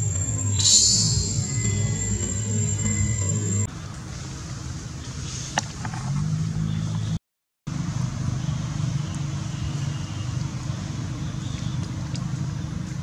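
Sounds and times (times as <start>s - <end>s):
motor engine humming: 0.0s - 3.7s.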